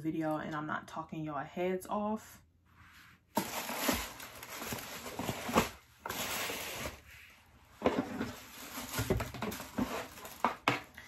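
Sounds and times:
packing paper rustling: 0:03.4 - 0:07.1, 0:07.9 - 0:11.0.

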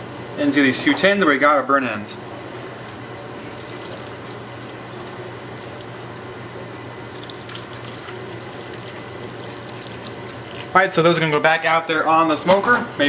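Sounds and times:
low steady hum: 0:00.0 - 0:13.0
sauce pouring trickle: 0:02.2 - 0:10.8.

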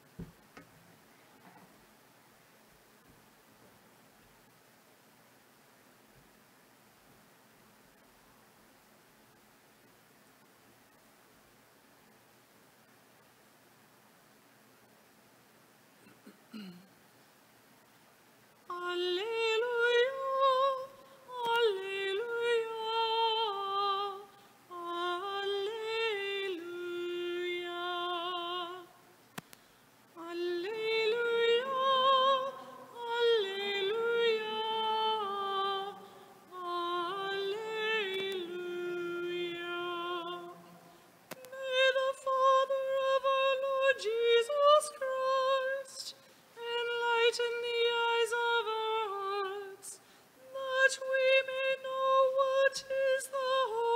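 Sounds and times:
woman singing with vibrato: 0:18.7 - 0:29.2, 0:30.1 - 0:53.9.

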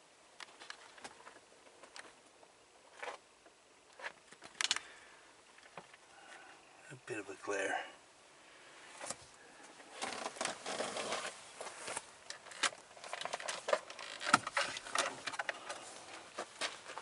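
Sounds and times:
camera handling rustling: 0:04.0 - 0:04.8, 0:10.0 - 0:17.0.

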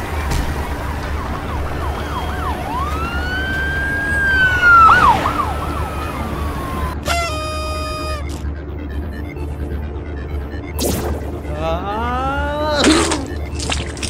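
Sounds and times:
siren wailing: 0:00.6 - 0:13.5.

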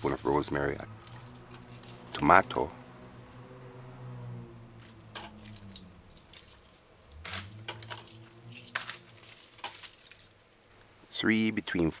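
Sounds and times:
plastic bag rustling: 0:00.0 - 0:02.2, 0:04.8 - 0:10.7
low hum: 0:00.0 - 0:11.2.

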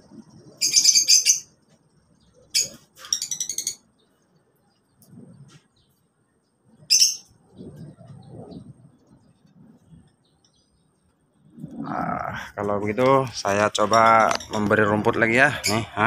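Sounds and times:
lovebirds chattering: 0:00.0 - 0:16.0.

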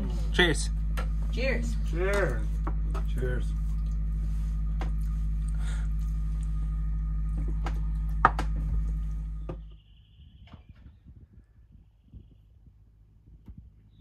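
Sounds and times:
boat engine droning: 0:00.0 - 0:10.2
sharp knocks and clicks: 0:02.1 - 0:03.2, 0:07.4 - 0:09.7.

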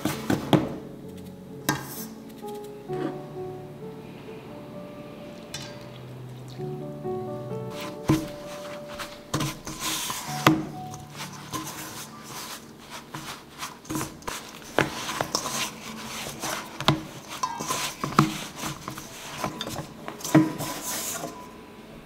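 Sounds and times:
hands rubbing dough: 0:07.7 - 0:21.4.

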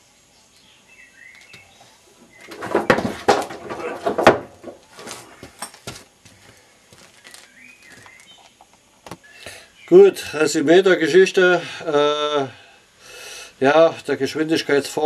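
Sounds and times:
bird chirping: 0:00.3 - 0:02.6, 0:07.1 - 0:10.0
knocking and clattering handling: 0:02.4 - 0:06.0.

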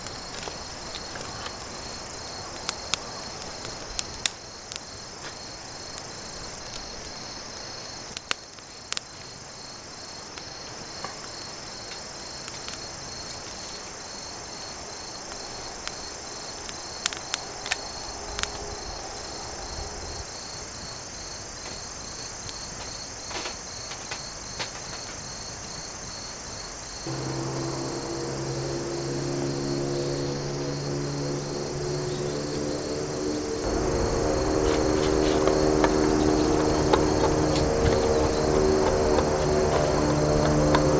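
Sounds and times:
crickets chirping: 0:00.0 - 0:40.9
steady low tones: 0:27.1 - 0:40.9.

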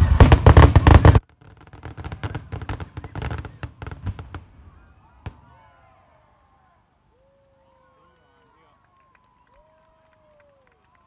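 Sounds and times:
fireworks crackling: 0:00.0 - 0:05.4.

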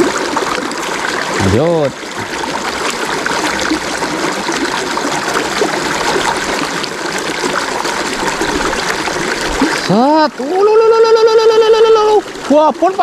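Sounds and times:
stream babbling over stones: 0:00.0 - 0:13.0.

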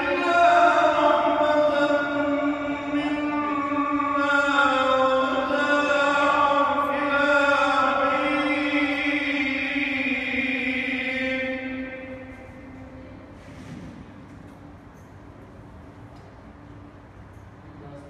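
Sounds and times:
man chanting melodically: 0:00.0 - 0:12.8.

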